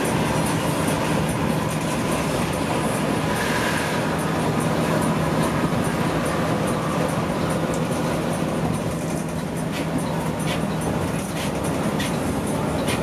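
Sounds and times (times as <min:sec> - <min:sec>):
coach engine drone: 0:00.0 - 0:13.0
tyre and road noise: 0:00.0 - 0:13.0.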